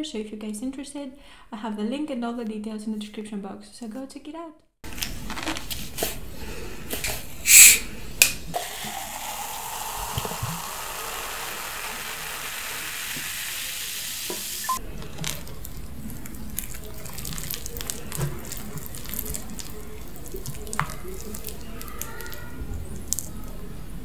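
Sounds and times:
hiss of escaping gas: 7.4 - 7.9, 9.1 - 14.8
water pouring and fizzing: 8.6 - 23.3.

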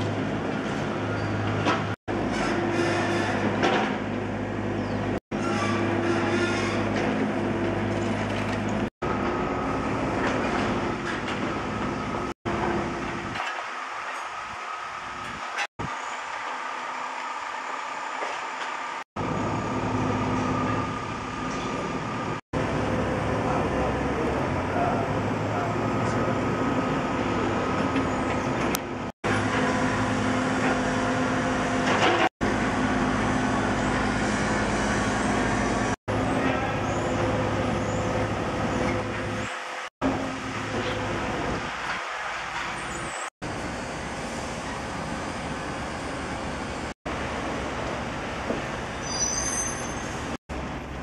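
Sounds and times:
street traffic: 18.8 - 51.0.

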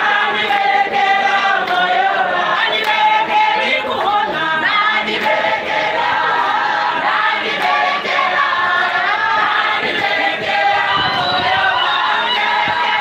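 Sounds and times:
congregation singing in chorus: 0.0 - 13.0.

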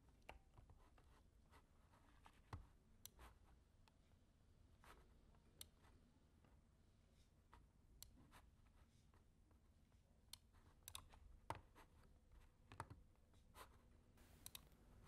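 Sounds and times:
computer mouse and keyboard clicks: 10.3 - 13.1, 14.2 - 14.8.

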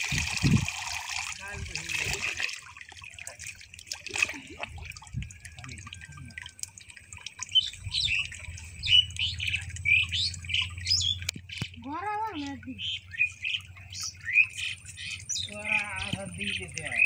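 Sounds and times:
water and mud sloshing: 0.0 - 17.0
small birds chirping: 7.4 - 17.0.

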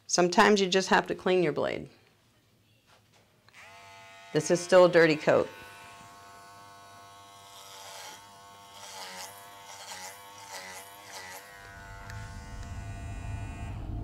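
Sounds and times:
dog clipper buzzing: 3.5 - 13.8.

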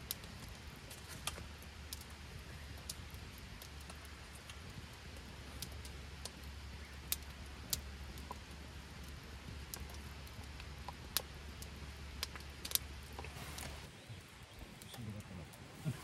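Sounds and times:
sharp clicks and pops: 2.8 - 13.9.

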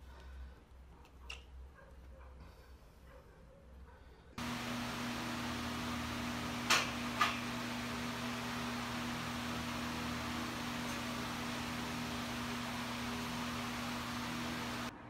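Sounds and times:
mechanical hum and fan noise: 4.4 - 15.0.

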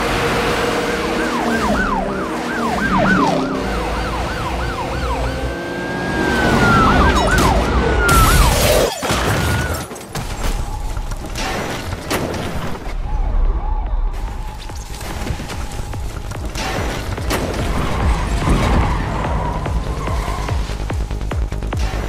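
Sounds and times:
police siren yelping: 0.6 - 8.9
car engine rumble: 12.6 - 22.0.

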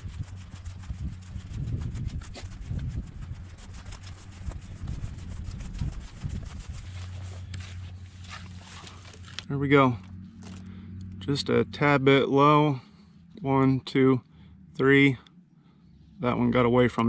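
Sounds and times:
microphone handling noise: 0.0 - 10.8
footsteps through dry grass: 0.0 - 11.0
wind rumble: 0.0 - 15.2.

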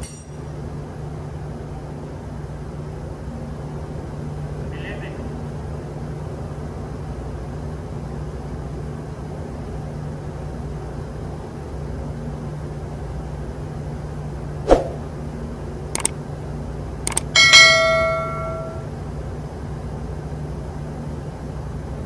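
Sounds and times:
metal clang ringing: 0.0 - 0.4, 17.4 - 18.9
metal tool clinking on metal: 0.0 - 0.4, 17.1 - 18.9
low machinery hum: 0.0 - 22.0.

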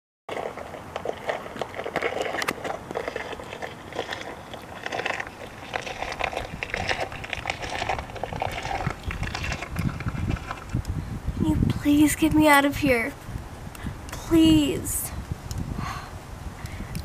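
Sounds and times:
plastic toy moved over stone: 1.0 - 11.0.

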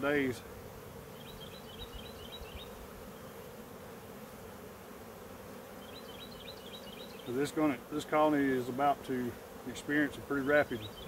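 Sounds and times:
honeybees humming: 0.0 - 11.0.

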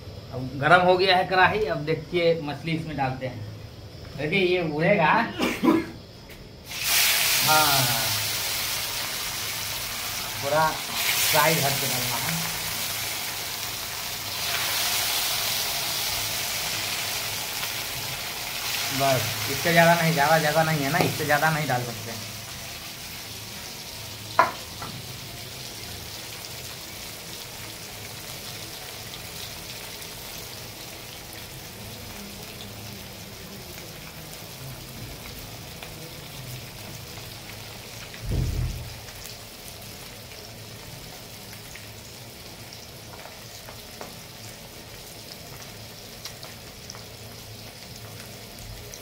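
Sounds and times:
fish deep-frying in oil: 6.0 - 49.0
short dull thump: 38.2 - 38.9.

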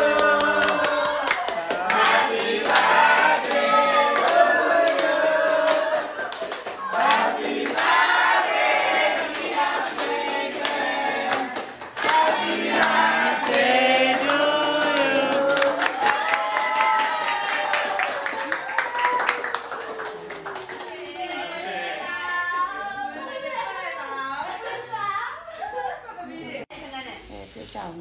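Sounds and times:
group of people singing together: 0.0 - 16.0
hand clapping: 0.2 - 21.0.

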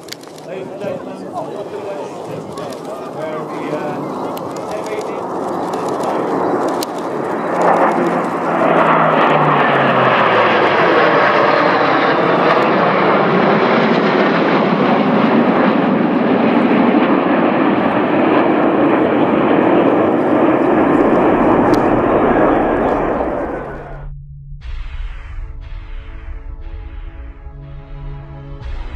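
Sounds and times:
military jets roaring past: 0.0 - 28.9
low tone dropping in pitch: 6.3 - 13.9, 19.4 - 28.9.

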